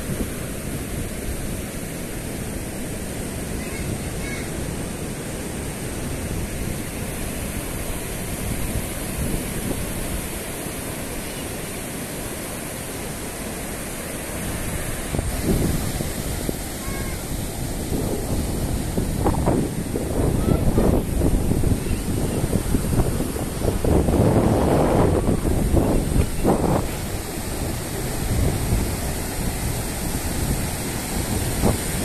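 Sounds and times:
surf breaking on beach: 0:00.0 - 0:32.0
wind buffeting microphone: 0:13.3 - 0:32.0.

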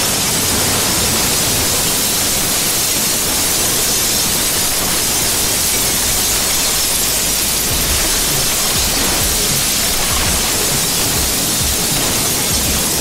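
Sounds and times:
explosion rushing noise: 0:00.0 - 0:13.0.

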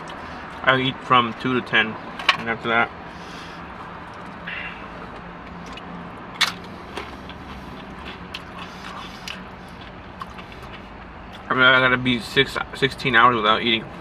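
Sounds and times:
low car cabin hum: 0:00.0 - 0:14.0
chewing: 0:05.1 - 0:11.5.

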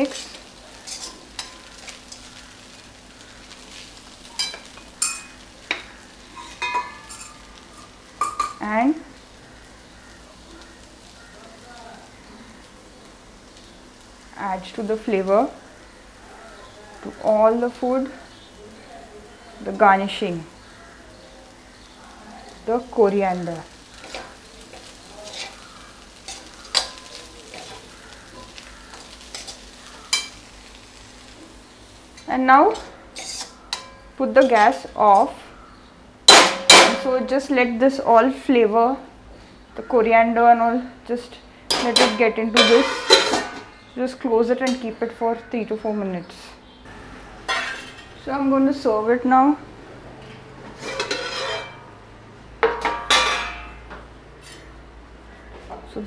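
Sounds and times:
faint sizzle: 0:00.0 - 0:56.0
spoon scraping steel pan: 0:00.1 - 0:01.6, 0:32.2 - 0:34.8, 0:50.7 - 0:51.8
spoon stirring rice in pan: 0:00.1 - 0:08.6, 0:23.7 - 0:34.9, 0:50.7 - 0:51.8
spoon clinking pan rim: 0:04.4 - 0:05.8, 0:06.4 - 0:08.6
spoon clinking against pan: 0:04.4 - 0:08.6, 0:29.3 - 0:30.4, 0:32.7 - 0:34.6, 0:41.7 - 0:43.6.

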